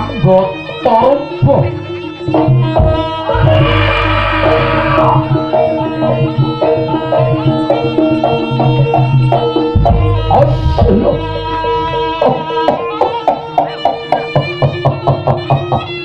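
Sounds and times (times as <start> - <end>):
bronze metallophones melody: 1.7 - 14.6
hand drums driving beat: 2.3 - 16.0
gongs: 2.6 - 7.5.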